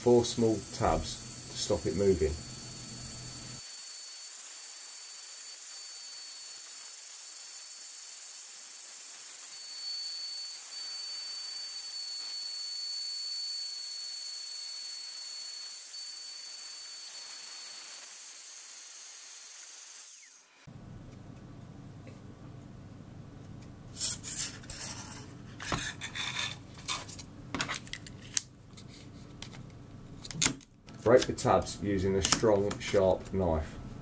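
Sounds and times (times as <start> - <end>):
thin high whines: 0.0 - 8.0, 9.4 - 18.2
router spinning hiss: 0.0 - 12.0, 15.0 - 20.7.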